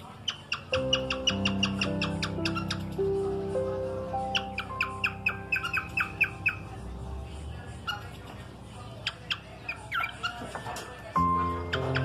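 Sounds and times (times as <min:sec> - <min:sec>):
cockatiel chirping: 0:00.0 - 0:03.3, 0:04.2 - 0:06.8, 0:07.8 - 0:08.3, 0:09.0 - 0:12.0
cockatiel whistled notes: 0:00.2 - 0:03.2, 0:04.2 - 0:06.7, 0:09.0 - 0:12.0.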